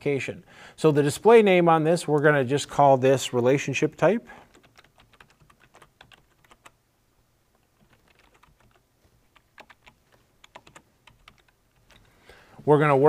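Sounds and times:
computer keyboard typing: 4.5s - 6.8s, 7.6s - 12.1s.

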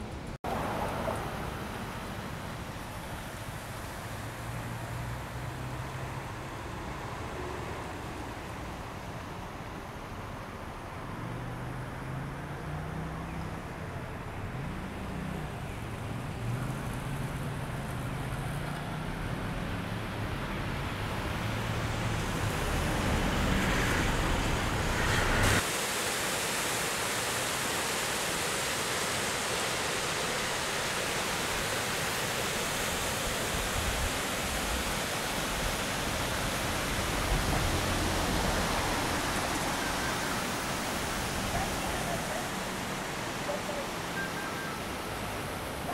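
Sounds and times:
stream rushing over rocks: 19.4s - 45.9s.

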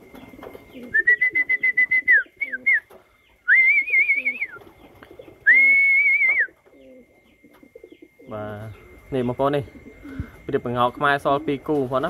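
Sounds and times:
pigeons cooing: 0.0s - 12.0s
person whistling: 0.9s - 2.8s, 3.5s - 4.6s, 5.5s - 6.6s.

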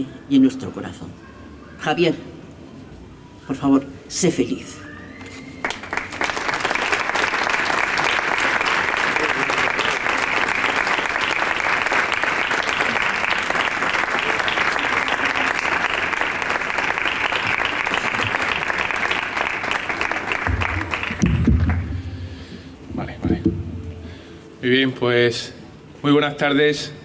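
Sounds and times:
audience applauding: 5.3s - 22.1s.

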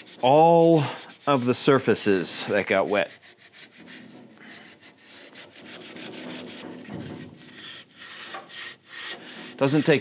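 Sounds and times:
abrasive pad rubbing wood: 0.0s - 10.0s.

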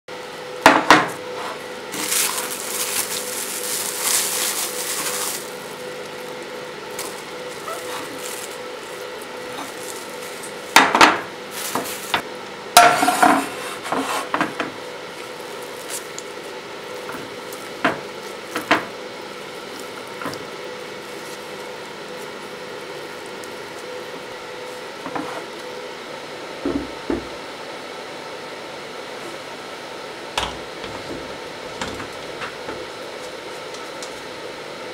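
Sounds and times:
plastic film crinkling: 1.9s - 10.8s, 11.5s - 12.2s, 15.0s - 24.8s.

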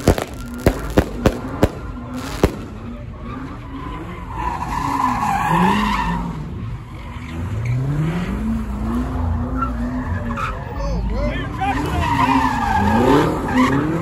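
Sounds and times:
firework pops: 0.0s - 2.9s
car engine revving: 0.0s - 10.6s
tires squealing: 0.0s - 14.0s.

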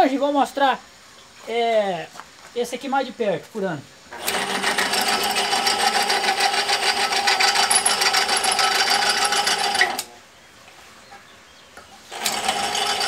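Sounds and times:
electric drill whining and rattling: 4.1s - 10.1s, 12.1s - 13.0s.

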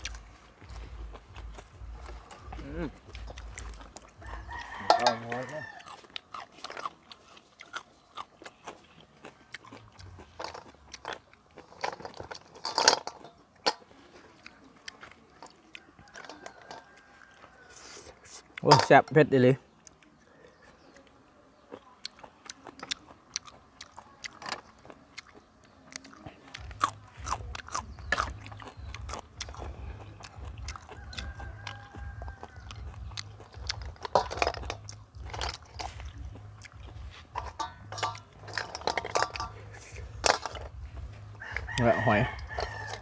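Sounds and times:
people chewing and crunching: 0.0s - 43.0s
spoons and shells clicking on bowls: 4.5s - 5.2s, 33.5s - 36.0s, 37.3s - 40.8s.

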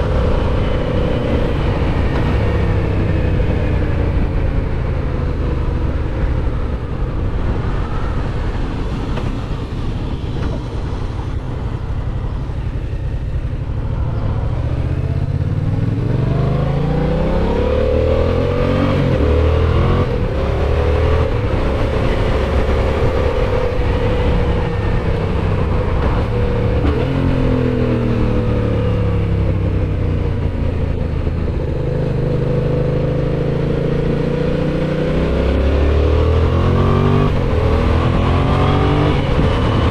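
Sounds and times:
motorcycle engine revving: 11.9s - 39.9s.

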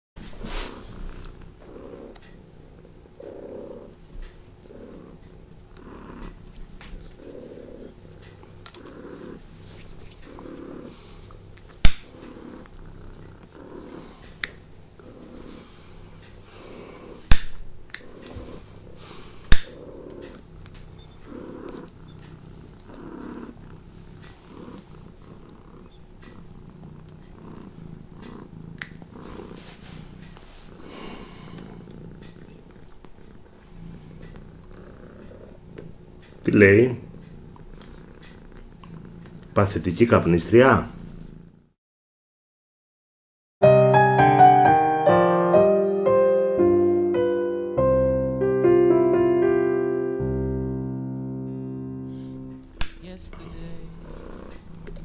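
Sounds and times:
cat purring: 0.2s - 41.8s, 52.0s - 55.0s.

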